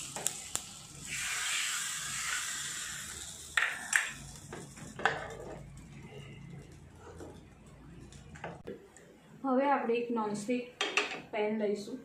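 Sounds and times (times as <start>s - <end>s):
hot oil sizzling: 0.0s - 7.0s.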